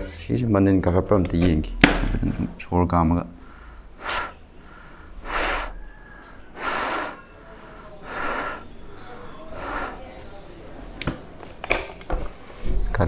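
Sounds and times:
heavy breathing inside helmet: 3.4s - 10.3s.

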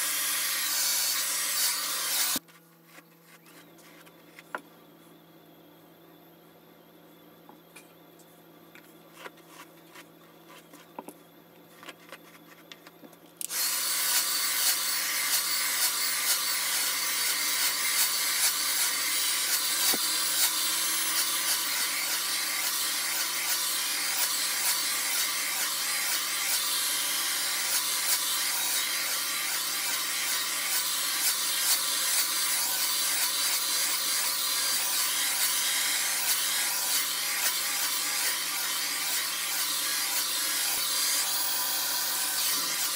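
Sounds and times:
hair dryer running: 0.0s - 2.4s, 13.4s - 42.9s.

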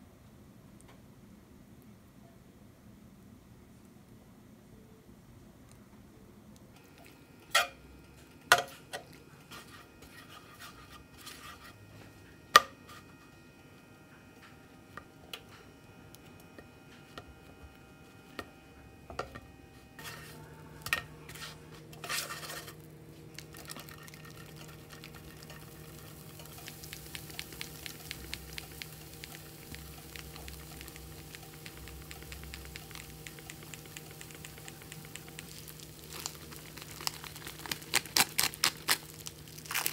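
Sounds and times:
low steady hum: 0.0s - 39.9s
food sizzling in a frying pan: 6.8s - 11.8s, 20.0s - 39.9s.

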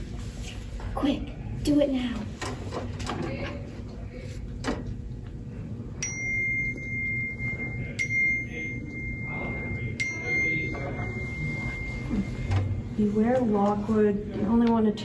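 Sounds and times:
high bell-like chime: 6.0s - 12.5s.

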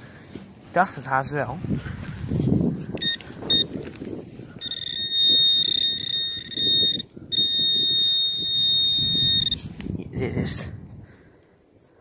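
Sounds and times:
high-pitched electronic tone: 3.0s - 3.7s, 4.6s - 9.6s
pinpointer short beep: 3.0s - 3.8s, 4.6s - 9.6s.

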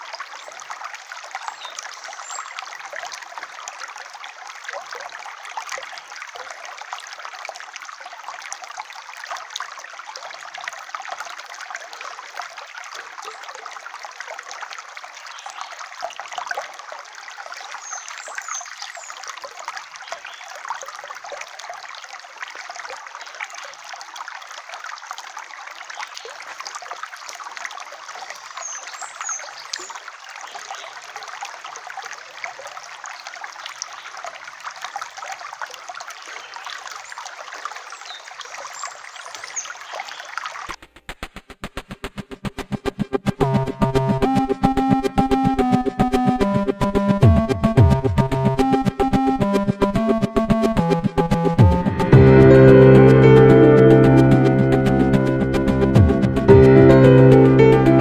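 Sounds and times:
stream trickling over stones: 0.0s - 40.8s, 42.8s - 57.4s
rhythmic electronic music: 40.8s - 58.0s.

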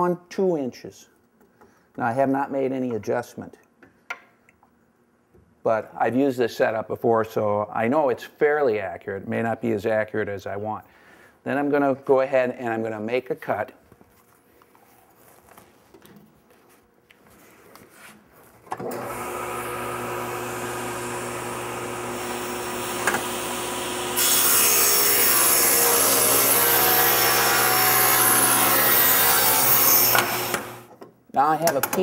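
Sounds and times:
saw cutting particle board: 18.8s - 30.9s
table saw motor humming: 18.8s - 30.9s.

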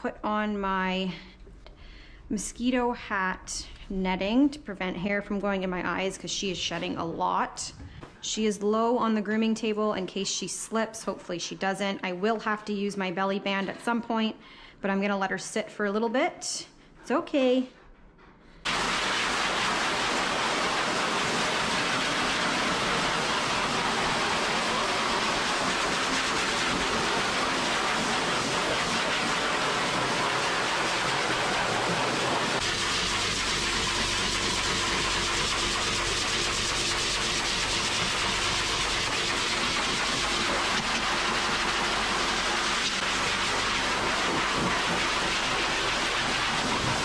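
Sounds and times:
pet dryer blowing air: 18.7s - 47.0s.

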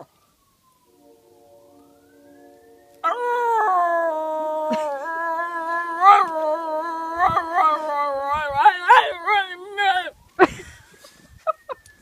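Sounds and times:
dog howling: 3.0s - 10.1s.

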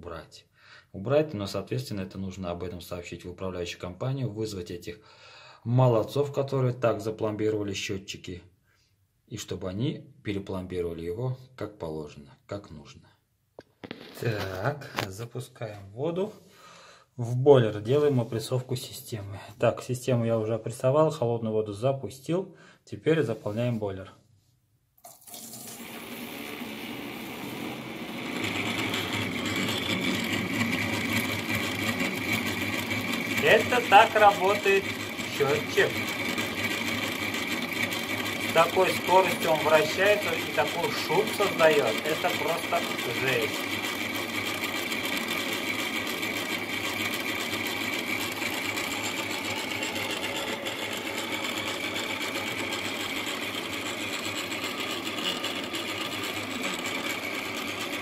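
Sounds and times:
water meter whirring: 25.0s - 58.0s
water rushing through pipe: 25.2s - 28.3s.

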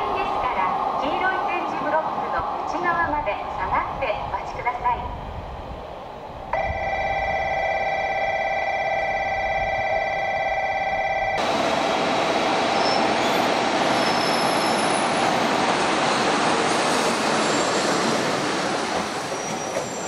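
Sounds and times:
whine of held tones: 6.6s - 11.4s
train rushing past: 11.4s - 20.0s.

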